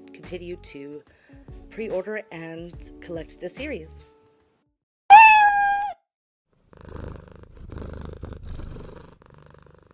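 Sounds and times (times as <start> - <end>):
cat meowing: 5.1 - 6.0
cat purring: 6.6 - 9.9.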